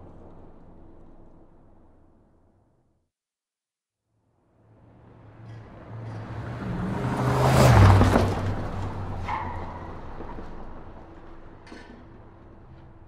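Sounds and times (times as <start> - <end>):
car speeding past: 4.6 - 11.4.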